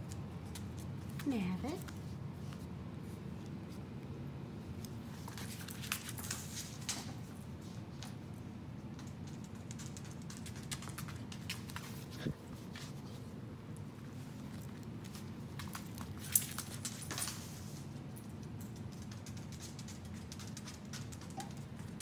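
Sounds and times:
puppy clicks and taps on floor: 0.0s - 2.0s, 4.8s - 8.2s, 8.8s - 12.2s, 13.7s - 22.0s
room hum: 0.0s - 22.0s.

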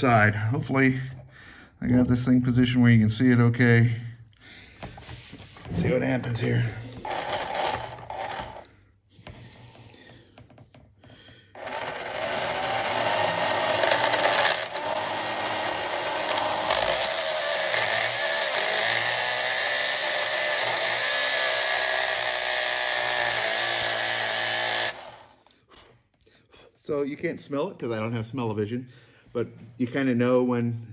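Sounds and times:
blade scraping turning plastic: 7.0s - 8.7s, 11.6s - 22.2s
small electric motor whine: 11.6s - 25.4s.

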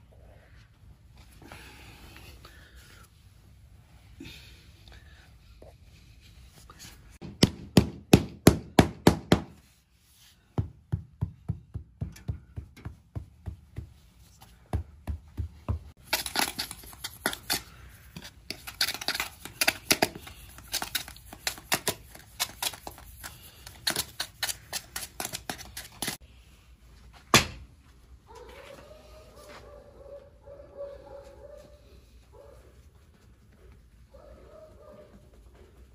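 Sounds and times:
trowel scraping and tapping sand: 15.9s - 26.2s.

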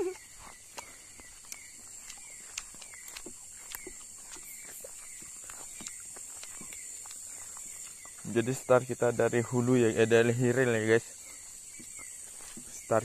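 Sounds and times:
night insects chorus: 0.0s - 13.0s
light sharp ticks: 1.5s - 8.2s.

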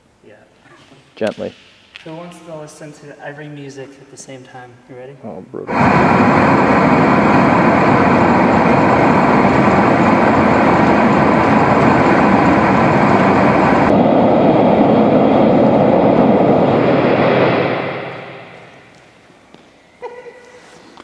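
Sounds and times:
loud white noise from speakers: 0.0s - 21.0s.

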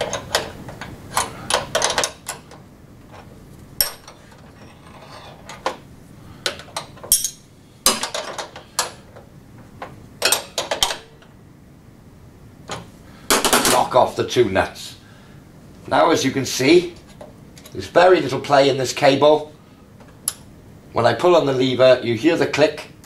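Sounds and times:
spanner clinking on metal nut: 7.0s - 7.4s.

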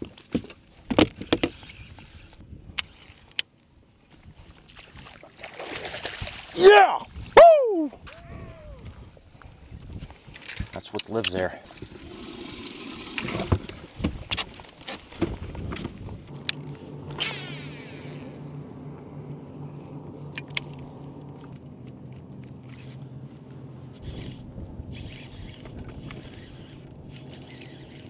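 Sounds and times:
wind on microphone: 6.1s - 10.8s, 23.9s - 28.0s
short whirring swish: 17.1s - 18.4s
small electric motor humming: 24.0s - 28.0s.

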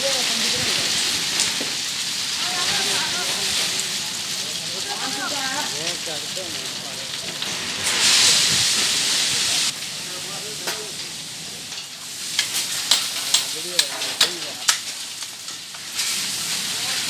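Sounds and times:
coal sliding off: 0.0s - 9.9s, 11.8s - 17.0s
hand tools striking coal: 10.6s - 11.1s, 11.7s - 16.4s.

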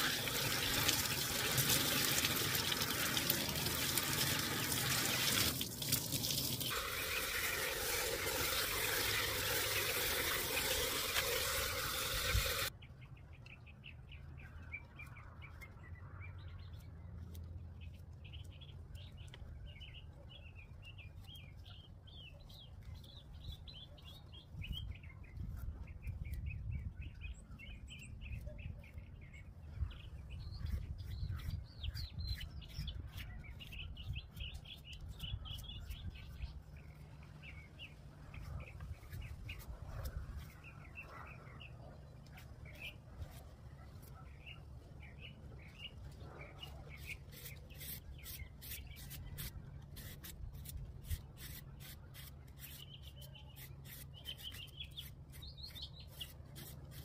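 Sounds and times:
hose spraying water into bowl: 0.0s - 12.7s
birds chirping: 0.0s - 57.0s.

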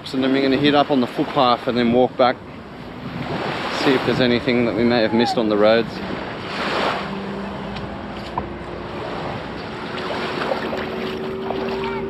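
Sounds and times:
distant engine hum: 0.0s - 12.0s
small waves washing on shore: 0.0s - 12.0s
wind on microphone: 0.0s - 12.0s.

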